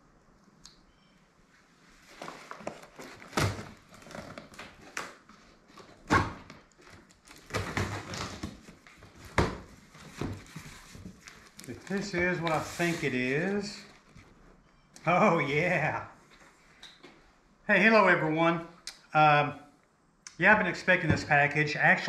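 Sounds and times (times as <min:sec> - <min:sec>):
cardboard and tape tearing: 0:02.2 - 0:05.2, 0:06.8 - 0:08.7, 0:10.5 - 0:13.7.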